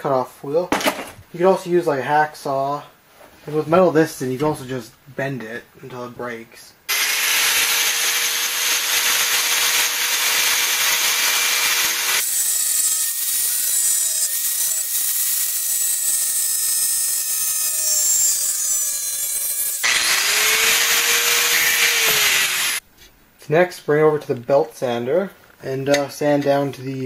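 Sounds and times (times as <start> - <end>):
angle grinder cutting sheet steel: 6.9 - 22.8.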